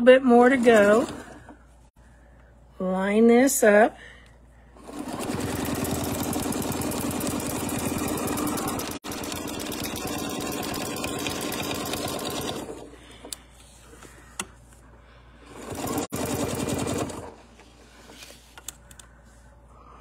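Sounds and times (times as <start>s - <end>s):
sewing machine stitching: 0.4s - 1.6s, 4.8s - 12.9s, 15.5s - 17.4s.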